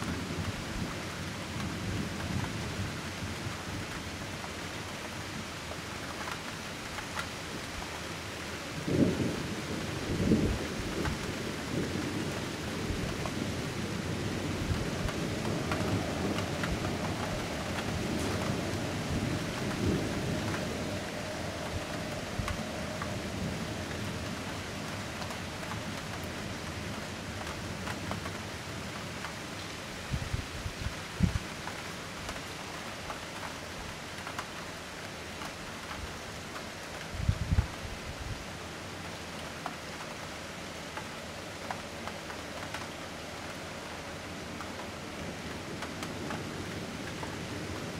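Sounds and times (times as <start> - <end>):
rain hiss: 0.0 - 47.9
low rolling thunder: 8.8 - 28.2.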